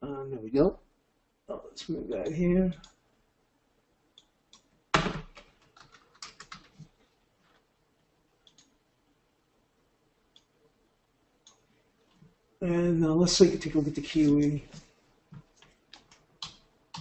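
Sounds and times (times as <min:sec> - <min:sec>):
typing on a keyboard: 0:04.5 - 0:06.9, 0:15.6 - 0:17.0.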